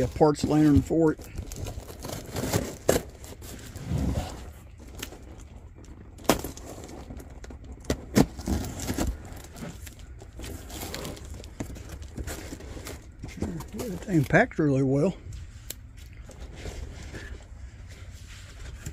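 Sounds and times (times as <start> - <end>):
cardboard rustling: 0.0 - 14.4.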